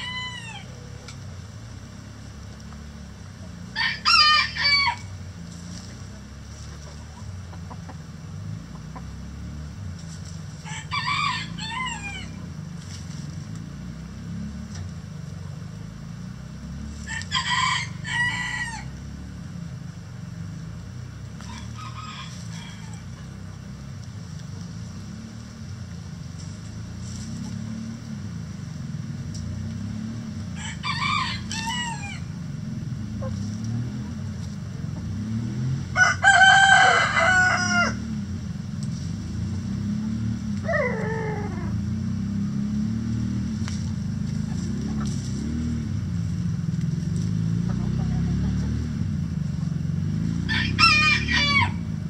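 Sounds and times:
chickens calling: 0:00.0 - 0:01.2, 0:03.4 - 0:09.2, 0:10.2 - 0:13.2, 0:30.6 - 0:32.4, 0:40.5 - 0:41.8, 0:44.2 - 0:45.6, 0:47.5 - 0:49.0
steady low hum: 0:00.0 - 0:50.8.

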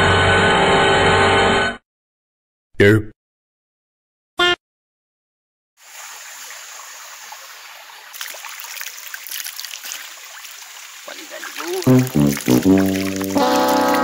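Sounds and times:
stream trickling over rocks: 0:05.8 - 0:14.0.

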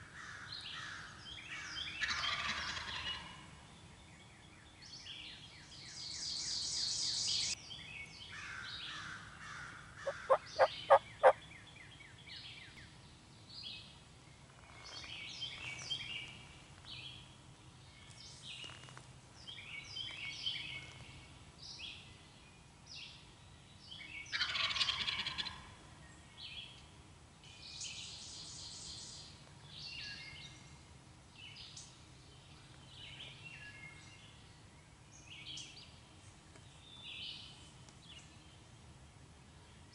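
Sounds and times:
songbirds chirping: 0:00.0 - 0:39.9
raspy bird call: 0:10.0 - 0:11.4
turkey calls: 0:10.0 - 0:11.4, 0:24.4 - 0:25.7.

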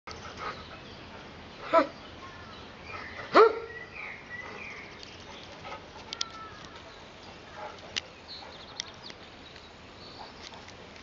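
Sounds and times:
dog barking: 0:03.3 - 0:03.7.

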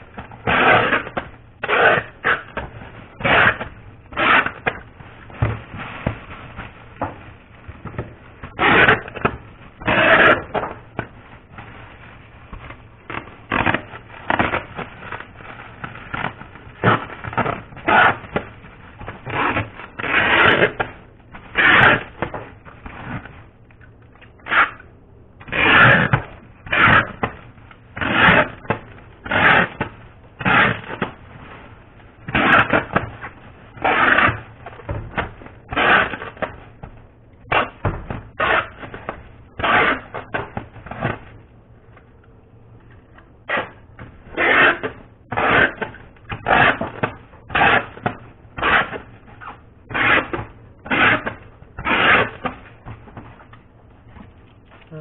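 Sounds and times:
foil wrappers crinkling: 0:02.1 - 0:20.0.

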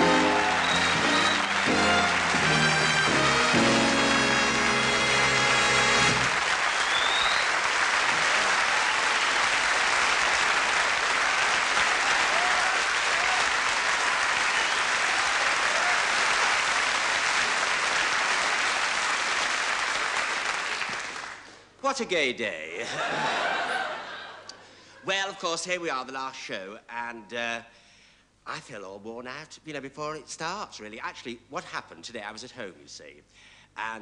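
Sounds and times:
band music: 0:00.0 - 0:06.4
studio audience applauding: 0:00.0 - 0:21.6.

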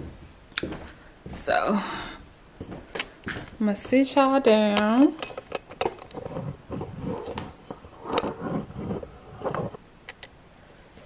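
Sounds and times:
fabric rubbing on microphone: 0:06.0 - 0:09.8.

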